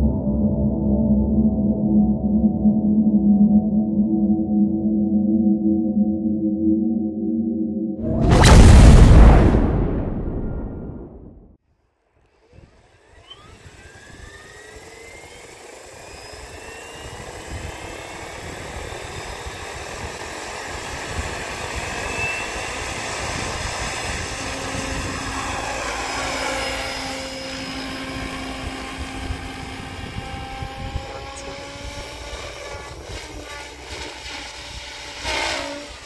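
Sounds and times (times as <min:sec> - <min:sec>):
electric helicopter motor whine: 0:12.2 - 0:36.0.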